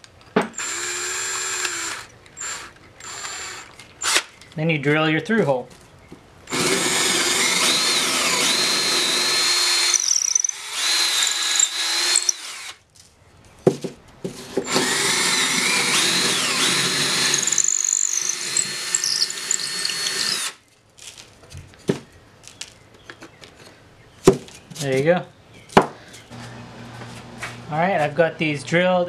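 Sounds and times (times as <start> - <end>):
power drill boring through wood: 0.6 - 4.3, 6.5 - 12.8, 14.4 - 20.6.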